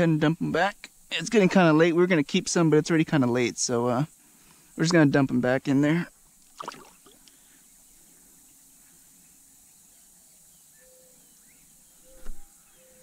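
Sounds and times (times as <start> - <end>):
faint high insect hiss: 0.0 - 13.0
brief knock: 12.2 - 12.4.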